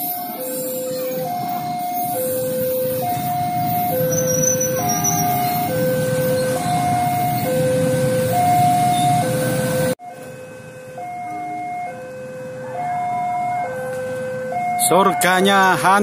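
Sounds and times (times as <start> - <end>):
two-tone crossing alarm: 0.0 - 16.0.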